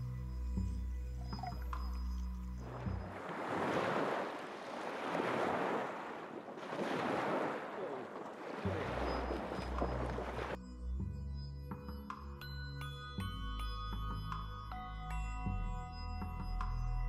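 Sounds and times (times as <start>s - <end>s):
music: 0.0s - 3.2s, 8.7s - 17.0s
lake waves washing onto shore: 2.6s - 10.6s
dog splashing through water: 2.7s - 10.6s.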